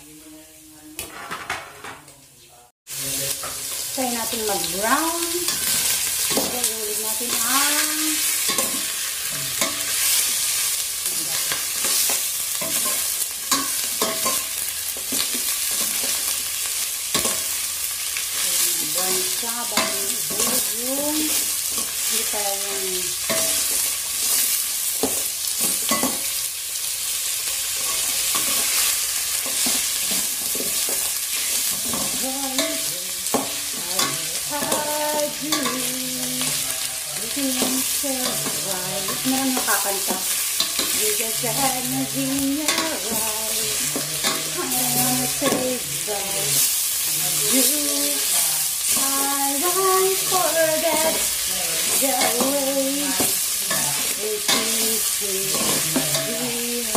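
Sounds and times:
meat sizzling in a pot: 0:02.8 - 0:56.9.

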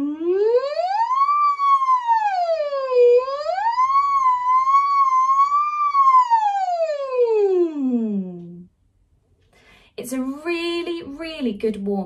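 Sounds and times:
woman humming vocal siren glide: 0:00.0 - 0:08.7.

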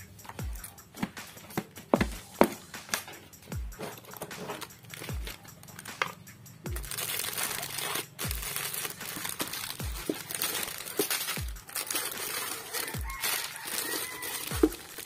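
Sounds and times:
background music with bass beat: 0:00.0 - 0:15.0
plastic wrappers crinkling: 0:03.8 - 0:15.0.

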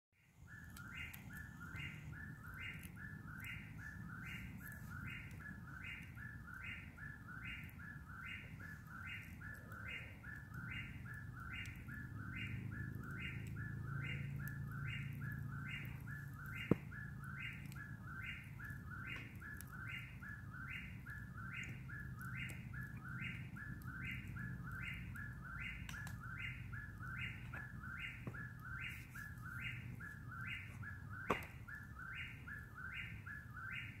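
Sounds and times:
sharp pop: 0:31.2 - 0:31.6.

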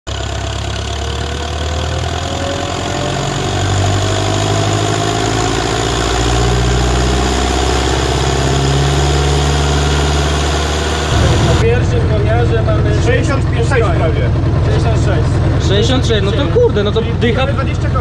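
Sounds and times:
tractor diesel engine running hard: 0:00.1 - 0:18.0
faint rising whine: 0:01.6 - 0:12.9.

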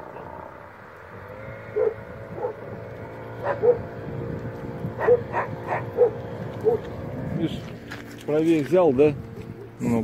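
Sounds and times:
dog barking: 0:01.8 - 0:02.6, 0:03.4 - 0:03.8, 0:05.0 - 0:06.9.

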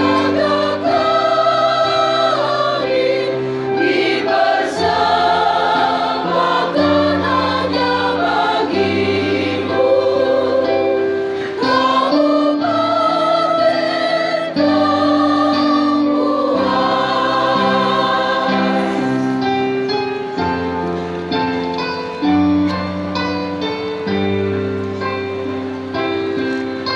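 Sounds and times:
choir singing: 0:00.0 - 0:20.2.

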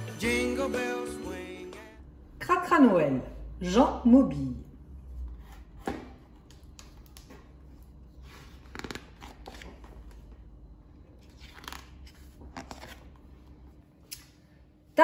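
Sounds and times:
low steady hum: 0:00.0 - 0:15.0
book pages turning: 0:05.0 - 0:14.0.

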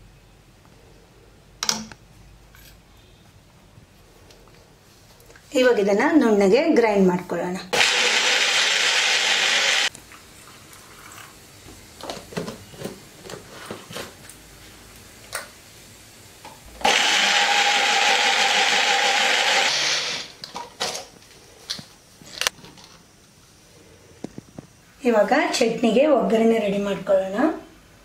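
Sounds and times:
mixer grinder motor running: 0:07.8 - 0:09.9, 0:16.7 - 0:20.4.

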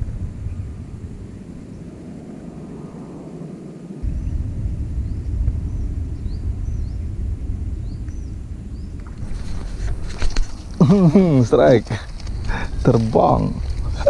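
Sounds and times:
wind rumbling on microphone: 0:00.0 - 0:14.0
high bird chirps: 0:05.0 - 0:07.1, 0:07.8 - 0:09.1.

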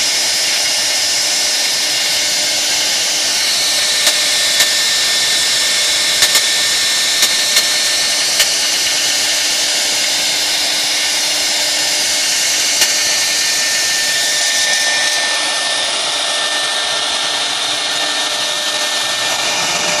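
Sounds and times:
router spindle cutting wood: 0:00.0 - 0:20.0
sharp ticks: 0:06.2 - 0:06.6.

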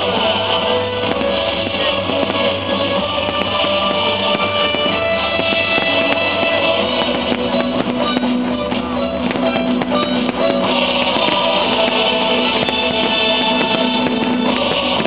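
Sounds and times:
music with guitar and drums: 0:00.0 - 0:15.0.

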